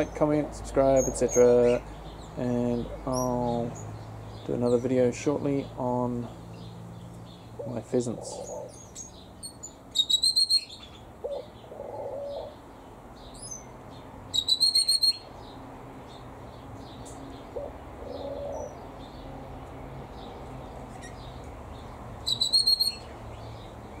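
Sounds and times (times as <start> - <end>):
small bird chirping rapidly: 0.9 - 11.6, 12.4 - 19.3, 20.1 - 24.0
faint bird twittering: 0.9 - 13.7, 20.9 - 24.0
dove cooing: 7.6 - 8.9, 11.2 - 12.6, 17.4 - 18.8.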